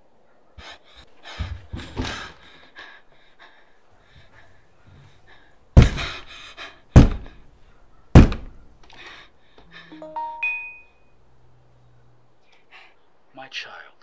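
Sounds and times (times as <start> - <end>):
heavy knocks on door: 1.3 - 2.4, 5.8 - 6.2, 6.9 - 7.4, 8.1 - 8.6
doorbell chime: 9.9 - 11.2.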